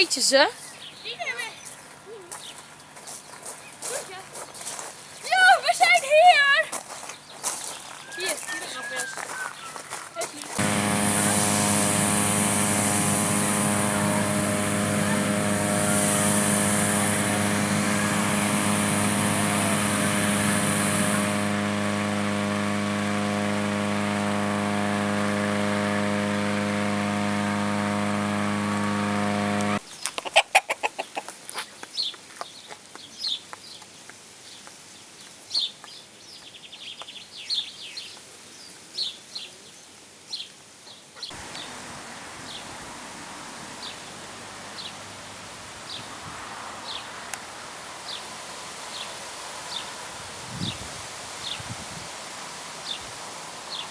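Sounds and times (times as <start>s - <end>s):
short high bird calls: 8.0s - 9.9s
high hiss: 10.6s - 22.0s
inflator fan engine running: 10.6s - 29.8s.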